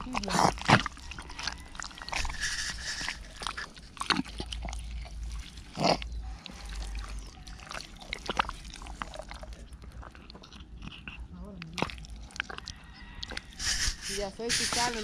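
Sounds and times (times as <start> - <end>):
knife scraping into soil: 2.2 - 3.3, 13.6 - 15.0.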